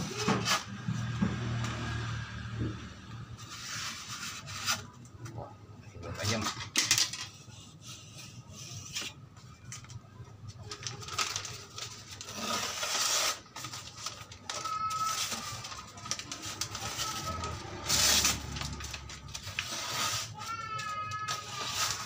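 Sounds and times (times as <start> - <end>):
blade slicing paper: 10.9 - 22.0.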